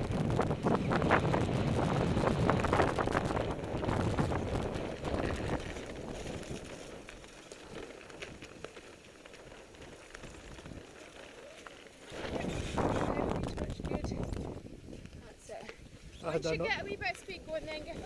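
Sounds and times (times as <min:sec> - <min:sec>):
wind rushing over microphone: 0:00.0 - 0:08.6, 0:12.1 - 0:18.0
wheels rolling on shelly sand: 0:00.0 - 0:18.0.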